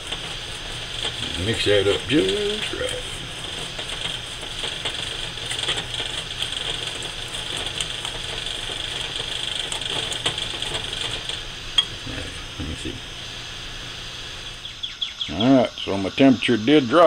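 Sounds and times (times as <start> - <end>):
background hum and hiss: 0.0 - 17.0.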